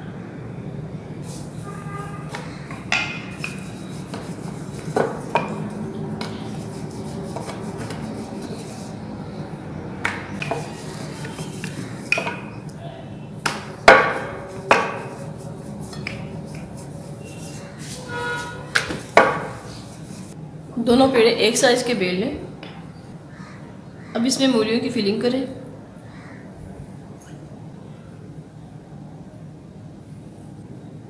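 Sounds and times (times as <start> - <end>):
rolling pin rolling dough: 1.2 - 9.0, 10.0 - 12.6, 13.4 - 20.4
rolling pin knocking on surface: 2.3 - 6.4, 10.0 - 12.5, 13.4 - 15.2, 18.7 - 19.6.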